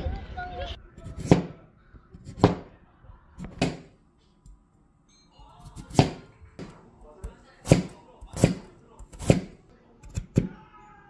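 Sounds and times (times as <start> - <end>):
knife slicing carrot: 1.0 - 1.6, 2.2 - 2.6, 5.6 - 6.2, 7.0 - 10.6.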